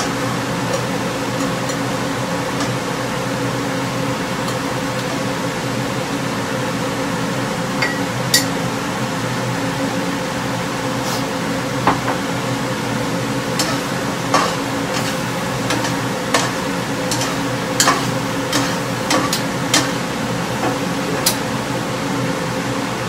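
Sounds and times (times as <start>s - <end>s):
food sizzling in a pan: 0.0s - 9.0s, 9.7s - 22.7s
steady hum: 0.0s - 23.0s
spoon clinking on pan: 7.8s - 8.5s, 13.6s - 20.0s.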